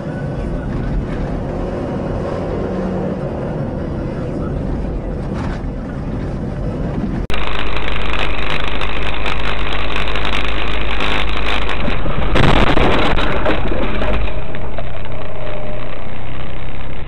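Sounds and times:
moving vehicle rumble and wind: 0.0s - 17.0s.

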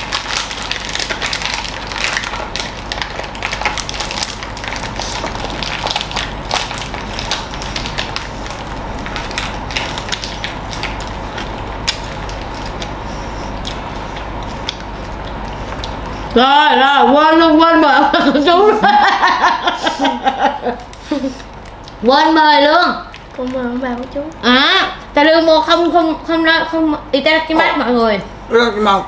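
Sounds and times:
crunching and chewing food: 0.0s - 16.4s, 20.7s - 25.2s.

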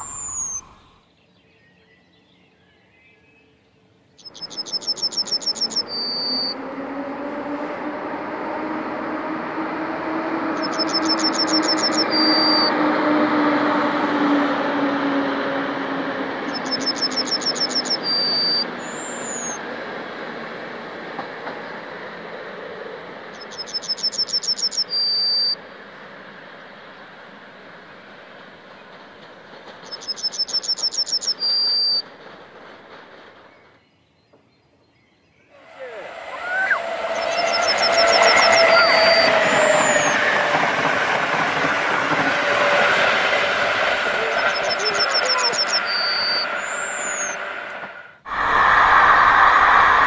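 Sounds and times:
electric train passing: 0.0s - 1.2s, 3.9s - 34.1s, 35.5s - 50.0s
songbird trilling: 4.2s - 6.6s.

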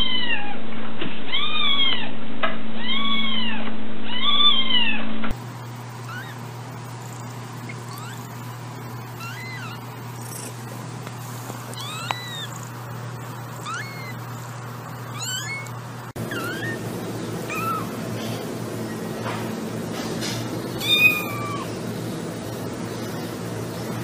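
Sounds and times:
low steady hum: 5.3s - 24.0s
kittens mewing: 5.7s - 18.5s, 20.7s - 21.8s.

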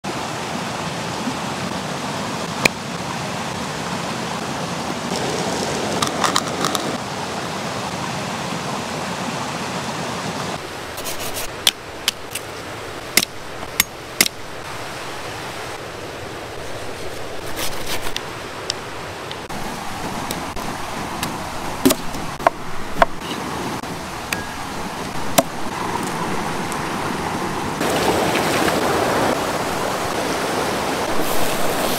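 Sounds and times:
stream rushing over rocks: 0.0s - 31.9s
handling taps and clicks: 11.5s - 12.5s.

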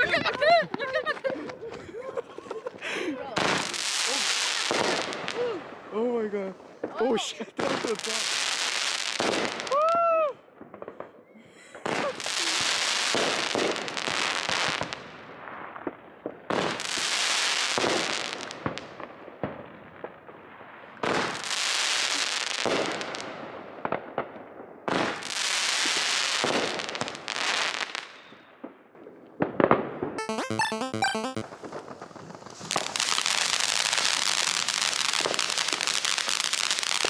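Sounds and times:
fireworks hissing and crackling: 2.6s - 5.4s, 6.7s - 9.8s, 11.7s - 15.8s, 16.5s - 19.0s, 21.1s - 23.4s, 25.0s - 28.2s, 31.8s - 37.0s.

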